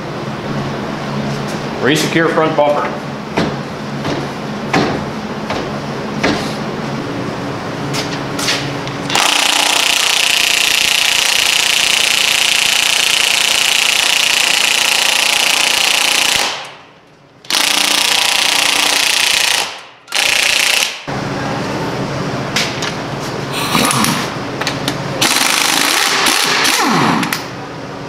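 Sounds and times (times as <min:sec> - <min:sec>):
impact wrench hammering: 0:03.4 - 0:06.5, 0:09.1 - 0:16.8, 0:23.8 - 0:27.5.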